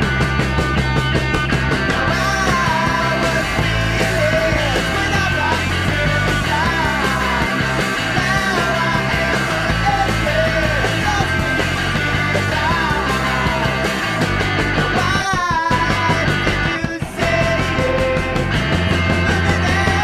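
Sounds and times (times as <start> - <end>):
bass line: 0.0 - 20.0
rock song: 0.0 - 20.0
person singing and shouting: 1.9 - 14.2, 14.8 - 18.5, 19.1 - 20.0.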